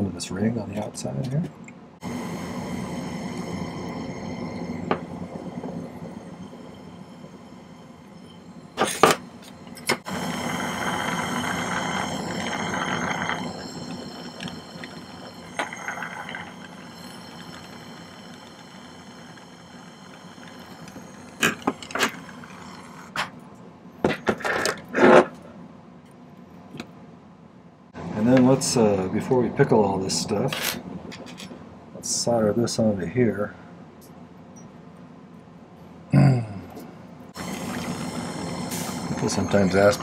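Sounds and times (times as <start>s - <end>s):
torch flame hissing: 2.0s - 23.2s, 37.3s - 40.0s.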